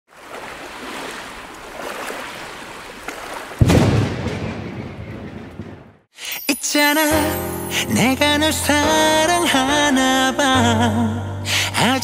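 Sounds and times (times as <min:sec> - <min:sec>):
loud deep crash: 0:03.6 - 0:06.1.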